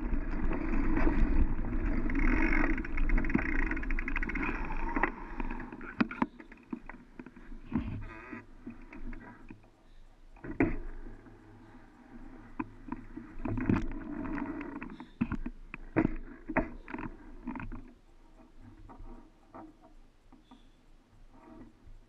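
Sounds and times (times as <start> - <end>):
bike tyre rumble on sand: 0.0 - 5.8
bike clicks and rattles: 0.0 - 7.5.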